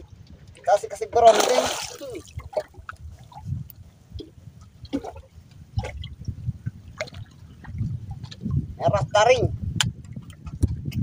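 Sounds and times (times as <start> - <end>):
water splashing and dripping: 0.0 - 8.7.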